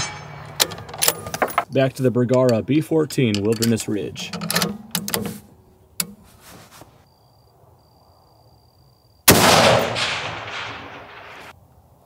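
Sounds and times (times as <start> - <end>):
gunshot echo: 9.3 - 11.5
rifle shot: 9.3 - 11.5.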